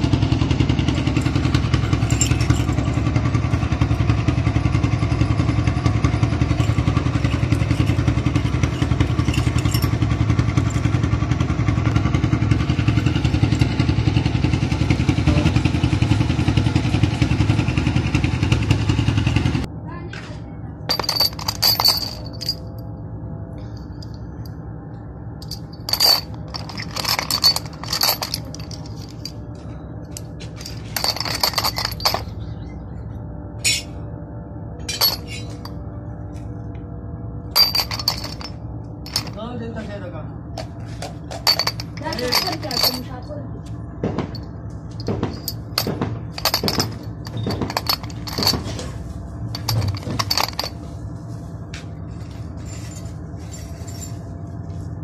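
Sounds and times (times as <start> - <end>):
metal parts clinking and rattling: 1.2 - 3.1, 6.3 - 10.9, 20.9 - 22.9, 25.4 - 32.8, 34.8 - 35.8, 37.5 - 39.6, 40.6 - 43.3, 44.2 - 50.9, 52.1 - 54.4
low hum: 20.6 - 55.0.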